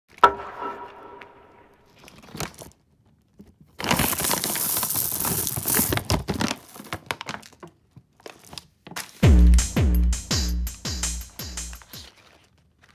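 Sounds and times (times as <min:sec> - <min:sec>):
plastic bag crinkling: 0:02.0 - 0:09.2.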